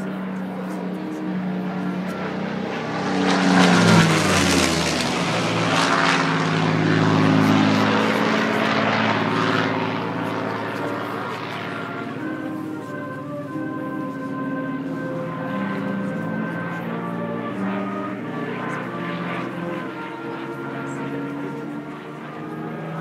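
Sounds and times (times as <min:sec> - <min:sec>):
propeller aircraft engine flying past: 0:00.0 - 0:23.0.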